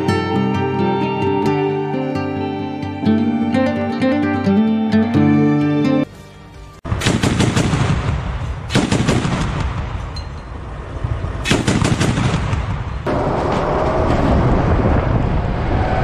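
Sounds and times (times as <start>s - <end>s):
guitar music: 0.0s - 6.8s
turret gun firing bursts: 6.9s - 10.0s, 11.5s - 12.9s
vehicle engine rumbling: 9.6s - 16.0s.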